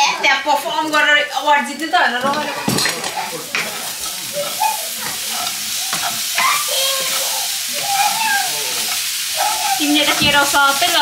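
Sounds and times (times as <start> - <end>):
vegetables sizzling in a pan: 0.0 - 11.0
utensil scraping and knocking pan: 8.9 - 11.0.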